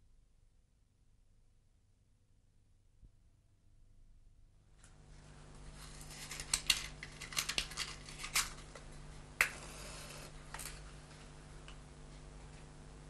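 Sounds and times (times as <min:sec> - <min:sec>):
steady low hum: 0:00.0 - 0:13.0
matchbox clicks and scratches: 0:06.0 - 0:08.8.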